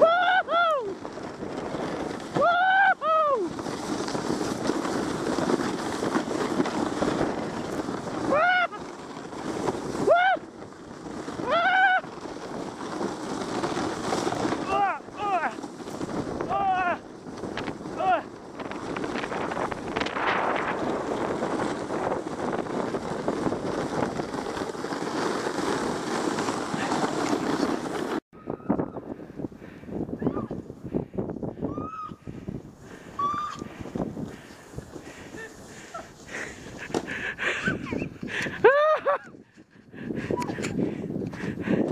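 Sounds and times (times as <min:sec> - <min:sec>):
wind on microphone: 0:00.0 - 0:41.9
sled runners hissing on snow: 0:03.3 - 0:10.2, 0:18.8 - 0:28.2, 0:32.2 - 0:38.6.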